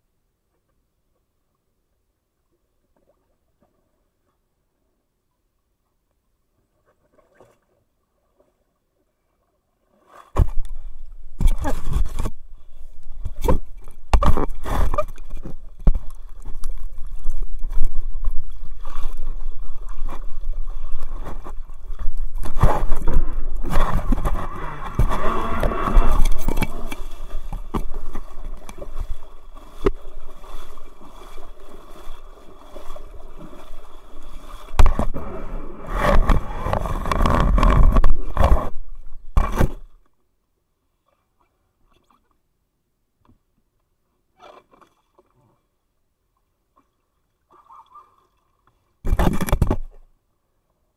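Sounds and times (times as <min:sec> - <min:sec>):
water sloshing: 0:06.8 - 0:40.0
low rumble: 0:22.7 - 0:27.8.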